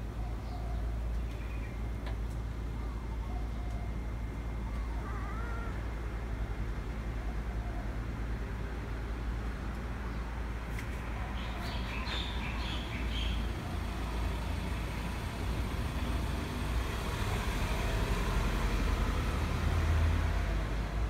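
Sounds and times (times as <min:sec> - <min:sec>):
road traffic rumble: 0:00.0 - 0:21.0
vehicle passing: 0:10.5 - 0:21.0.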